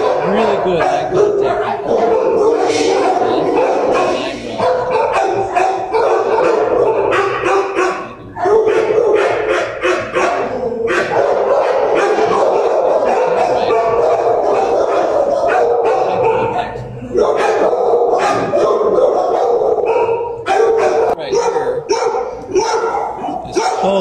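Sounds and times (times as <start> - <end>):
dogs barking and yelping: 0.0 - 24.0.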